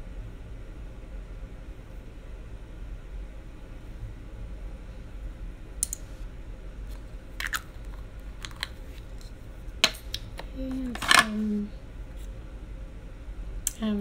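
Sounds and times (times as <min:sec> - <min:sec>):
low steady hum: 0:00.0 - 0:14.0
small items clicking on table: 0:08.4 - 0:08.8, 0:09.8 - 0:11.4.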